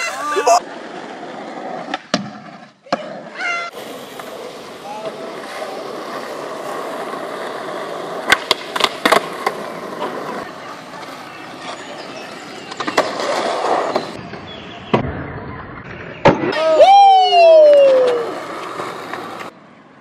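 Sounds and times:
skateboard wheels rolling on concrete: 0.0 - 20.0
skateboard wooden clacks: 1.8 - 3.1, 8.2 - 10.4, 12.6 - 15.1, 17.9 - 19.5.

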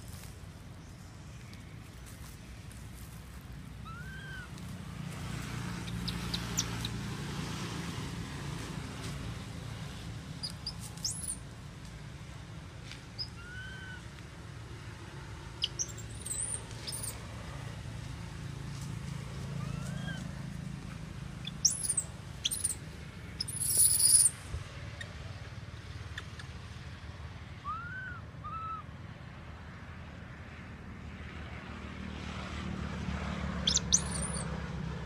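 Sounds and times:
rising and falling calls: 3.8 - 4.6, 5.8 - 7.1, 10.4 - 11.5, 13.1 - 14.2, 15.6 - 17.2, 19.6 - 20.3, 21.4 - 22.8, 23.4 - 24.3, 33.7 - 34.4
bird chirps: 5.8 - 7.0, 10.4 - 11.4, 13.2 - 14.0, 15.6 - 17.2, 21.4 - 22.8, 23.4 - 24.3, 33.7 - 34.4.

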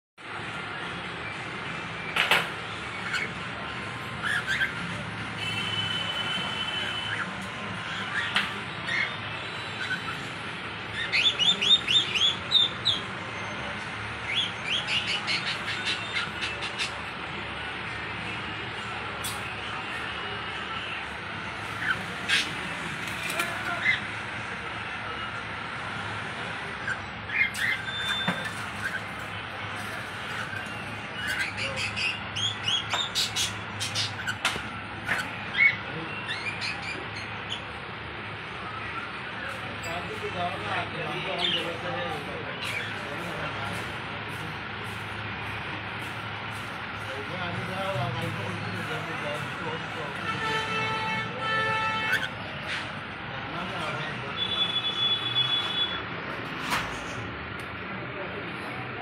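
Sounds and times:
cockatiels chirping: 3.0 - 3.4, 4.2 - 4.8, 7.0 - 10.3, 10.9 - 13.1, 14.3 - 17.0, 21.7 - 22.6, 26.8 - 29.3, 30.0 - 30.6, 31.2 - 37.7, 52.0 - 52.4.

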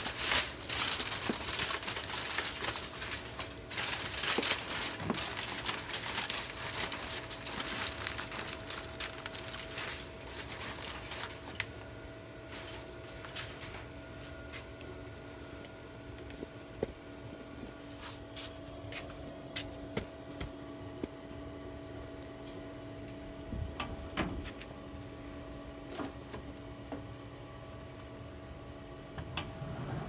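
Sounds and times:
grease fire crackling and sizzling: 0.0 - 11.8, 17.6 - 23.3
faint steady hum: 0.0 - 30.0.

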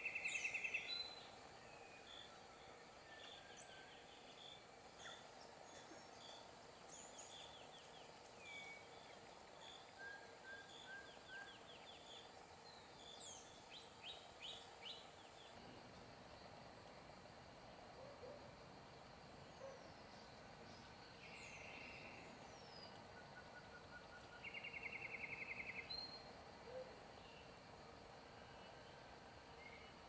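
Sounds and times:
faint songbird calls: 0.0 - 15.6, 19.5 - 27.6.

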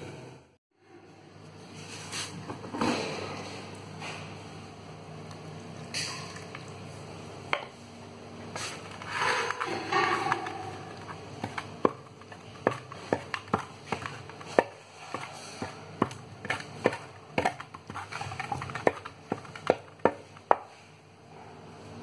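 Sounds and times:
tool knocking and scraping metal pan: 8.6 - 20.7.

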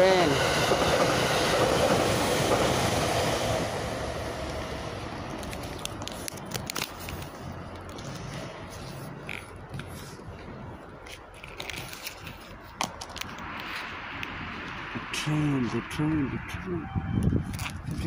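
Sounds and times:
phone microphone being handled: 17.2 - 18.0.

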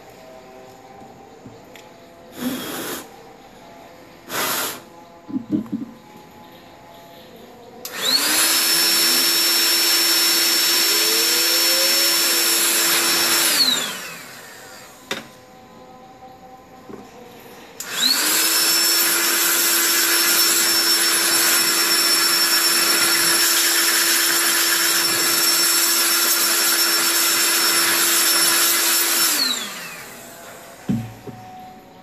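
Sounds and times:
electric air blower: 2.3 - 3.1, 4.3 - 5.0, 7.8 - 15.2, 17.8 - 31.2
thump: 30.9 - 31.4.

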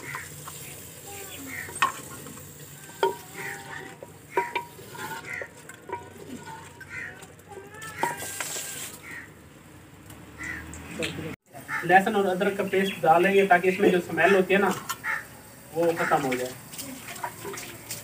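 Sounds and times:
liver sizzling in hot fat: 0.0 - 9.3, 11.5 - 18.0
wooden spoon knocking on pot: 1.7 - 6.9.

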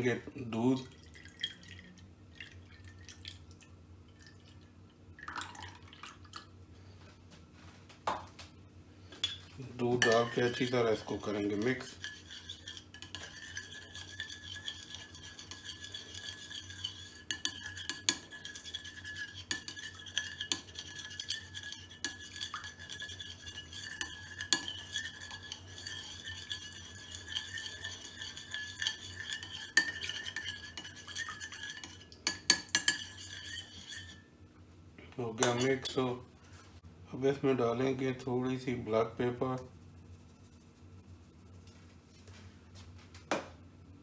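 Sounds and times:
spoon clinking against bowl: 9.2 - 34.2, 35.4 - 36.0.

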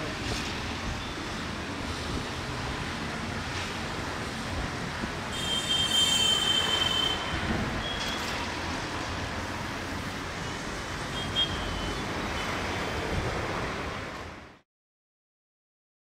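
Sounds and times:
train wheels squealing: 6.0 - 8.4.

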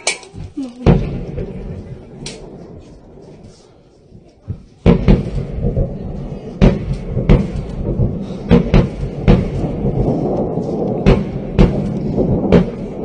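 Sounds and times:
rocket motors rumbling: 0.3 - 13.0
rocket launch bangs: 0.8 - 3.6, 4.6 - 13.0.

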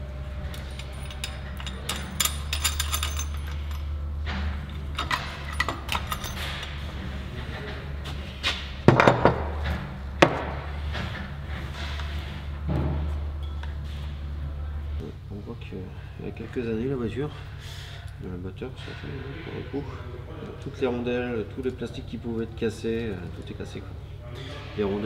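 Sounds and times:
metal engine parts clinking: 0.0 - 12.7
steady low hum: 0.0 - 25.0.

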